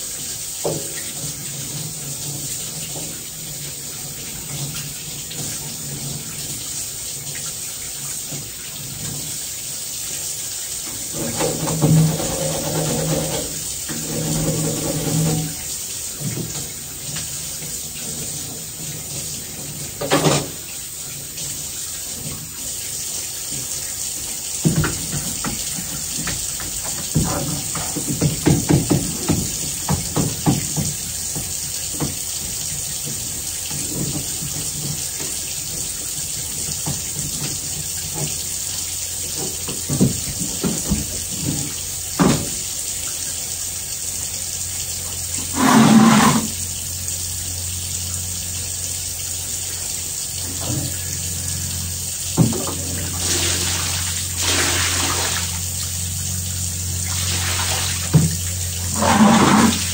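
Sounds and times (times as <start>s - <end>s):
water running at a sink: 0.0s - 59.9s
objects knocking and clunking: 11.0s - 15.6s, 18.0s - 20.7s, 24.6s - 38.5s, 39.3s - 42.7s.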